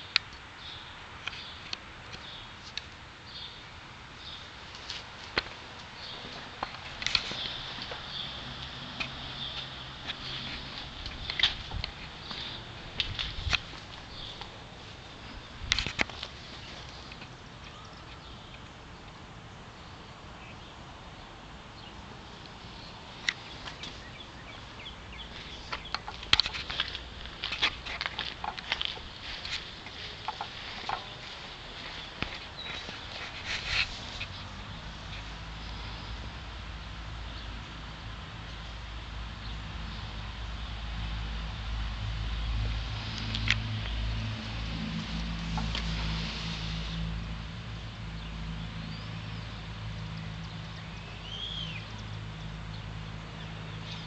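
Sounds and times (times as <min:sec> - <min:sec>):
birds chirping: 0:00.0 - 0:38.8, 0:47.8 - 0:54.0
sharp clicks and scuffs: 0:04.7 - 0:14.5, 0:25.3 - 0:35.3.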